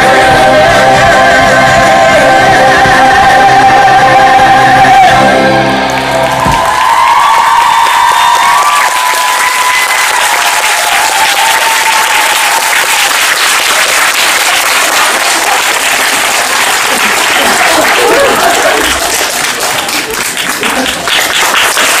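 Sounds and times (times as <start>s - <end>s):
audience applauding: 5.6s - 22.0s.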